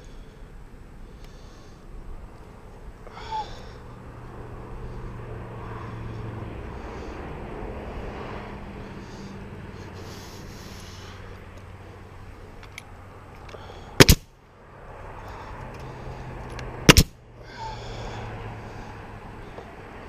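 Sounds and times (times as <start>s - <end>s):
nail gun firing: 14.0s - 14.2s, 16.9s - 17.1s.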